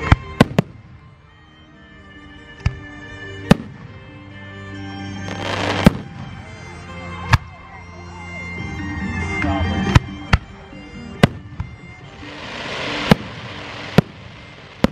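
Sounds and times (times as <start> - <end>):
music: 0.0 - 14.9
fireworks bangs: 5.3 - 6.3, 11.2 - 14.9.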